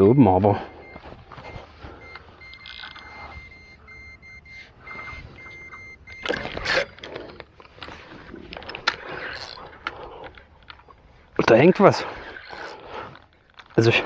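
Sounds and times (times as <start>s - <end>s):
rapid high electronic beeps: 0.0s - 7.0s.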